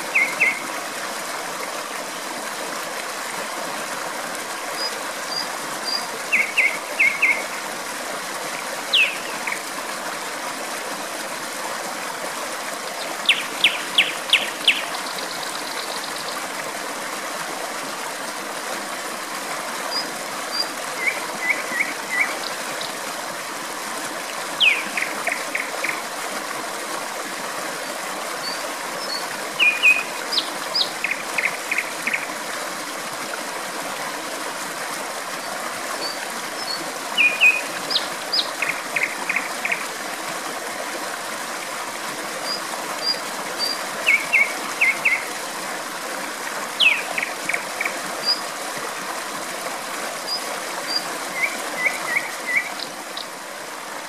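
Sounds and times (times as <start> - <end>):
flowing water: 0.0 - 54.0
nightingale singing: 5.9 - 7.4, 8.9 - 9.3, 24.6 - 25.1, 29.1 - 31.8, 46.8 - 47.3, 50.9 - 53.3.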